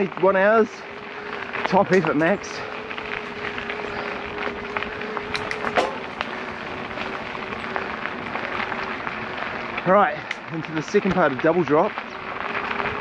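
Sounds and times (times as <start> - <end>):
tyres rushing on dirt: 0.0 - 13.0
electric bike motor whining: 0.8 - 10.5, 12.0 - 13.0
sharp clicks from stones: 1.6 - 8.8, 10.2 - 13.0.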